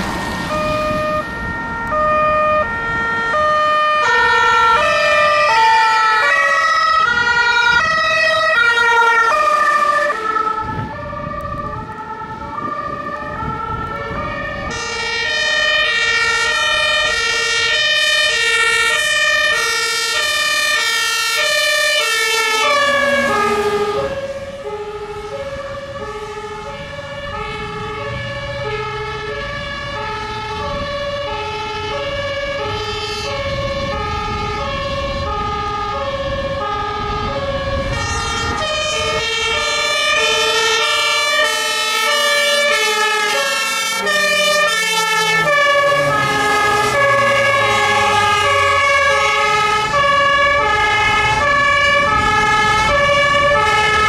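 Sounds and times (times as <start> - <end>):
engine and wet tyre noise: 0.0 - 54.0
two-tone emergency sirens: 0.0 - 54.0.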